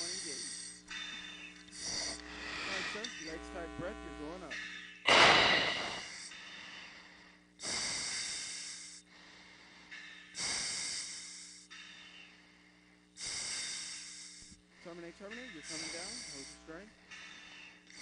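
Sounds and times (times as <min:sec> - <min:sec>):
breaths through oxygen mask: 0:00.0 - 0:03.4, 0:05.1 - 0:18.0
faint steady hum: 0:00.0 - 0:18.0.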